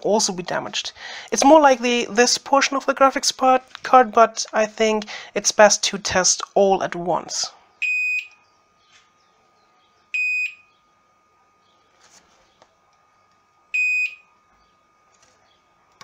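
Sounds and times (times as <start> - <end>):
multimeter high beeps: 7.8 - 8.4, 10.2 - 10.7, 13.7 - 14.3.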